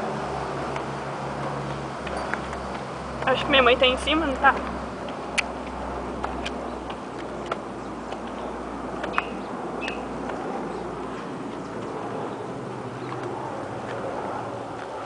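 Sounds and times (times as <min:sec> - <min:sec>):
outdoor background hiss: 0:00.0 - 0:13.9
footsteps tapping: 0:00.7 - 0:12.1.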